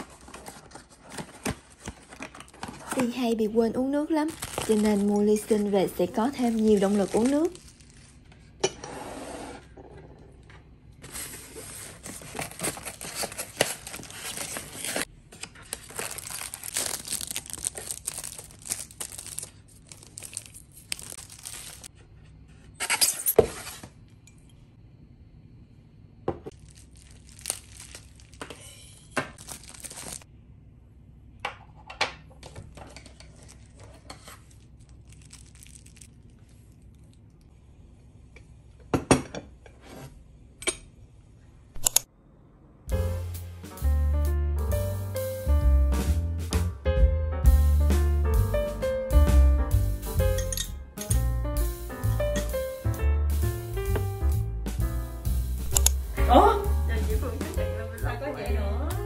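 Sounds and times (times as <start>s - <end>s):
plastic packaging crinkling: 0.0s - 3.2s, 4.0s - 8.6s, 11.1s - 21.9s, 26.5s - 30.3s, 33.0s - 37.2s.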